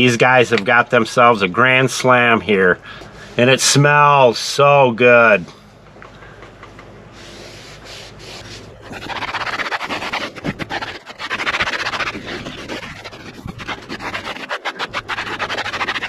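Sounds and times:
towel scrubbing car trim: 7.3 - 16.0.

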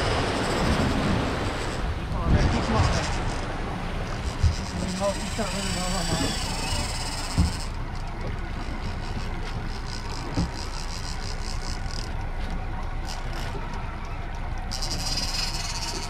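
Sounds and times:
outboard motor running: 0.0 - 16.0
water rushing past hull: 0.0 - 16.0
dull thumps: 7.2 - 8.4.

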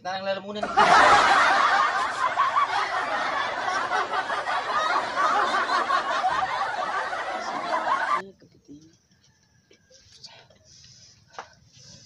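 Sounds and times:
crowd laughing and chattering: 0.6 - 8.3.

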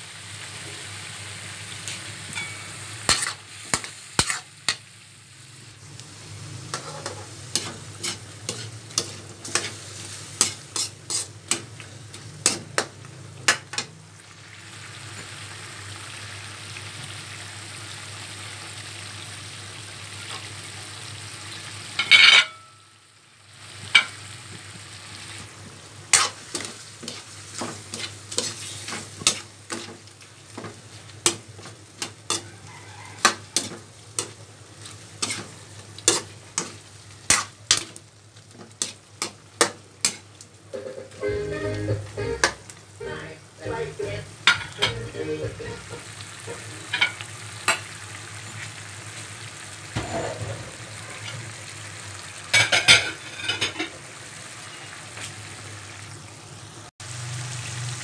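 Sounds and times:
chicken sizzling in a wok: 0.0 - 58.0
metal ladle scraping a wok: 6.7 - 11.6.

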